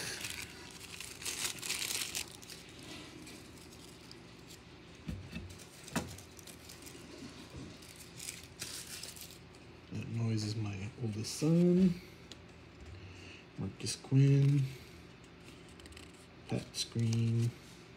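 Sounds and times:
wrapper crinkling as torn open: 0:00.0 - 0:04.8, 0:05.5 - 0:09.6.

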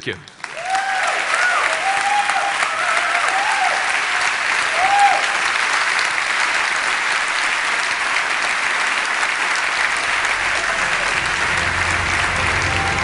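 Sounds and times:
audience applauding: 0:00.3 - 0:13.0
low rumbling sound: 0:09.7 - 0:13.0.

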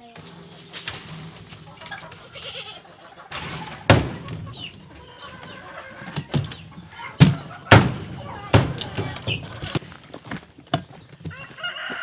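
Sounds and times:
wood shavings pouring: 0:00.0 - 0:02.8.

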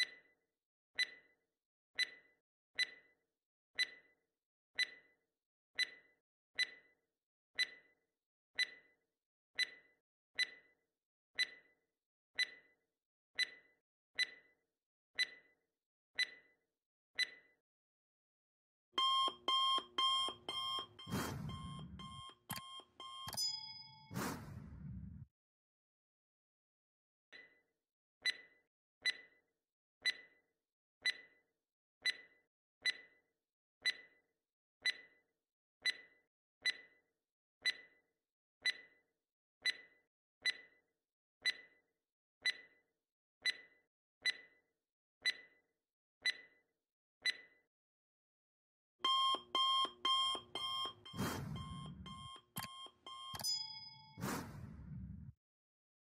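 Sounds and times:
alarm clock ringing: 0:19.0 - 0:24.2, 0:49.0 - 0:54.7
clock ticking: 0:19.0 - 0:24.6, 0:49.0 - 0:54.7
sharp stroke: 0:54.2 - 0:54.8.

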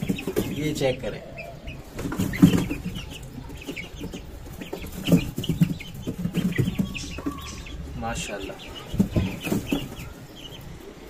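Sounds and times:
chicks cheeping: 0:00.0 - 0:11.0
young chickens clucking: 0:00.0 - 0:11.0.

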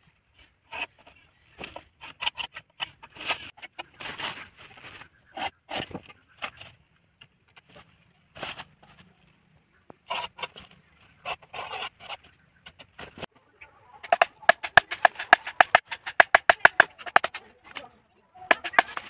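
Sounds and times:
hand saw scraping bamboo: 0:11.2 - 0:12.3, 0:14.0 - 0:17.8, 0:18.5 - 0:19.0.

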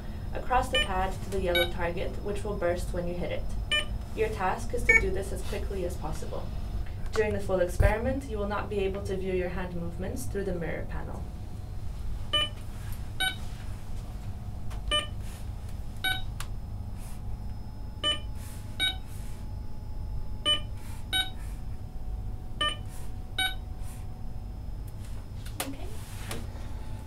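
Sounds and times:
steady low hum: 0:00.0 - 0:27.0
short electronic beeps: 0:04.9 - 0:05.1, 0:13.2 - 0:13.4, 0:18.0 - 0:19.0, 0:20.5 - 0:21.4, 0:22.6 - 0:23.6.

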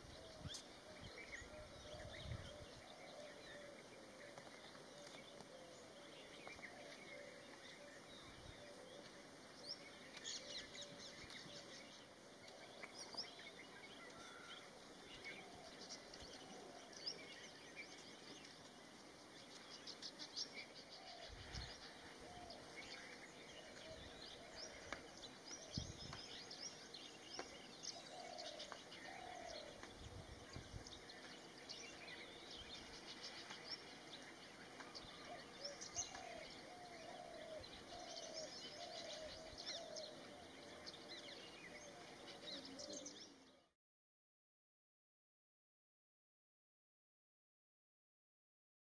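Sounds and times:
faint birdsong chirps and whistles: 0:00.0 - 0:43.8.

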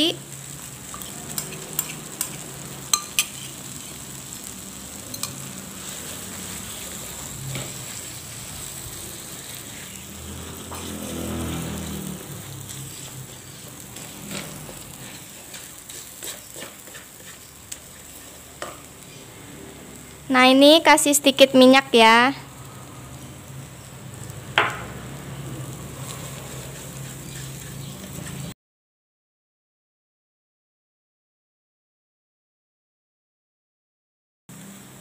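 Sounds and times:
paste sizzling in oil: 0:00.0 - 0:28.6, 0:34.5 - 0:35.0
spatula scraping wok: 0:00.0 - 0:28.6
spatula tapping pan: 0:00.9 - 0:03.5, 0:12.7 - 0:18.9, 0:24.6 - 0:24.9.

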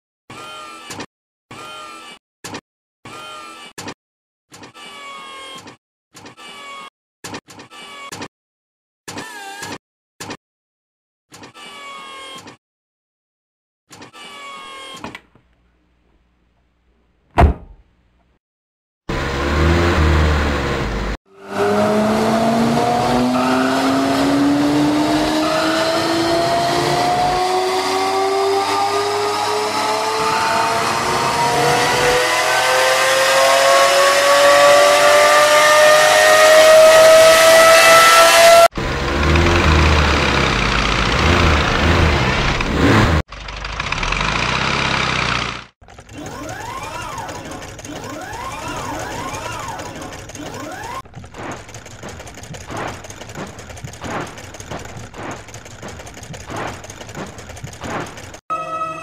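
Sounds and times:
whirring with rising sweeps: 0:19.1 - 0:43.2
sports car engine accelerating: 0:19.1 - 0:57.8
machine noise: 0:44.0 - 0:59.0.

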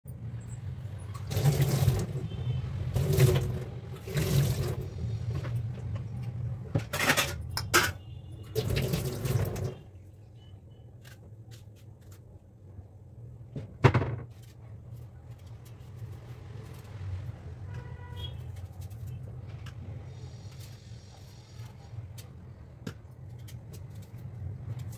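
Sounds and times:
tap water splashing in sink: 0:01.1 - 0:02.2, 0:08.5 - 0:09.8.

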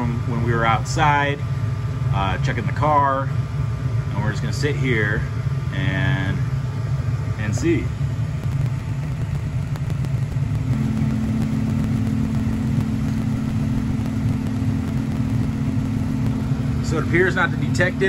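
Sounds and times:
furnace burner rumble: 0:00.0 - 0:18.0
steady hum: 0:00.0 - 0:18.0.

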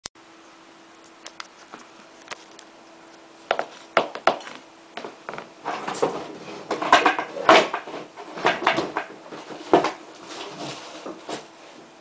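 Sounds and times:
rustling and scraping: 0:03.5 - 0:12.0.

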